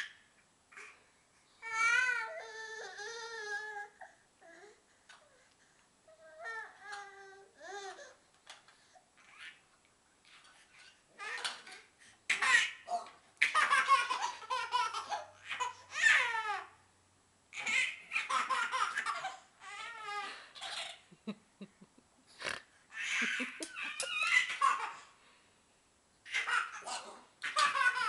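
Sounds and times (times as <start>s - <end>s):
baby laughing and squealing: 10.4s - 16.7s, 17.5s - 21.1s, 22.9s - 25.1s, 26.3s - 28.0s.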